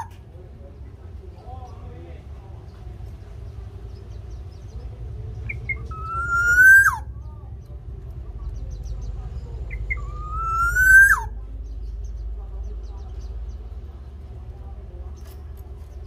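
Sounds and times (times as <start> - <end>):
bird singing whistled phrases: 5.4 - 7.1, 9.7 - 11.4.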